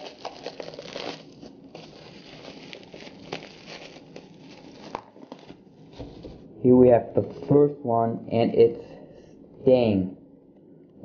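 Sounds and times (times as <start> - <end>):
plastic wrapping crinkling: 0.0 - 6.0.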